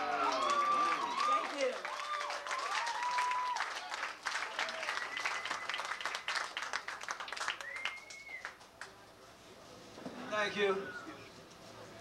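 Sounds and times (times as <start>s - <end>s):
audience applauding and cheering: 0.0s - 8.6s
whistles: 4.8s - 6.0s, 7.5s - 8.6s.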